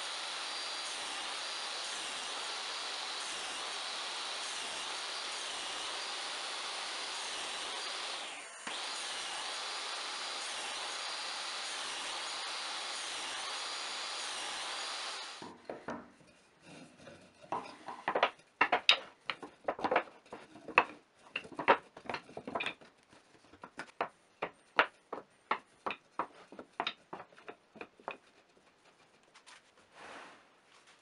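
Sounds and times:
power tool: 0.0s - 15.6s
wooden pieces knocking together: 17.5s - 28.2s.

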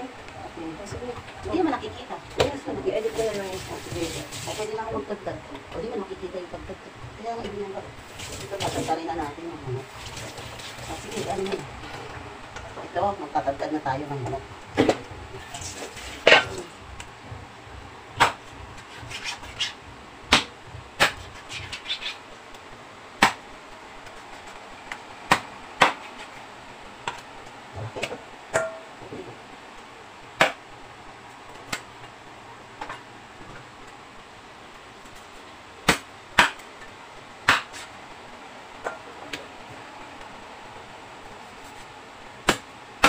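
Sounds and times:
cleaver chopping on wooden board: 37.4s - 37.8s.

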